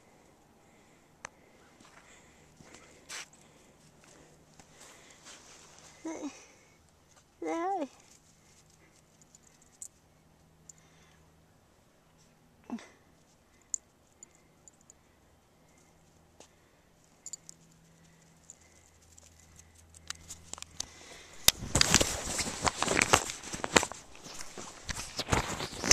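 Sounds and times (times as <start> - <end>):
rustling and crackling on microphone: 17.5 - 25.9.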